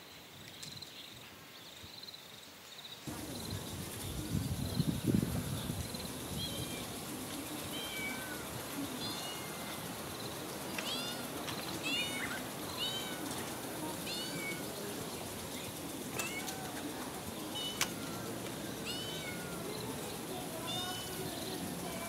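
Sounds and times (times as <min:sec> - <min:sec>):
background hiss: 0:00.0 - 0:22.0
cat mewing: 0:07.8 - 0:09.7, 0:10.8 - 0:13.3, 0:16.1 - 0:16.8, 0:17.5 - 0:19.7.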